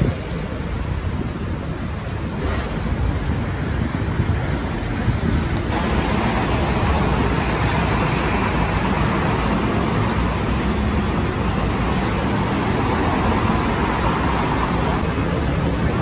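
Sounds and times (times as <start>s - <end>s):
cars passing: 0.0s - 16.0s
truck passing: 5.6s - 16.0s.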